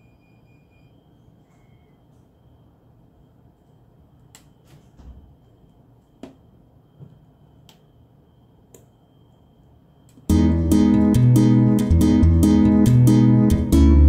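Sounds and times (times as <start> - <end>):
strummed acoustic guitar music: 10.3 - 14.0.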